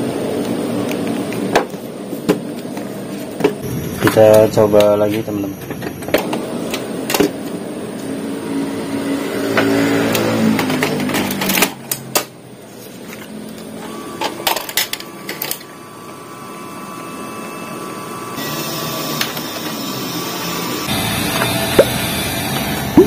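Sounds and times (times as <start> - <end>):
printer motor whine: 3.6 - 11.0, 13.2 - 23.0.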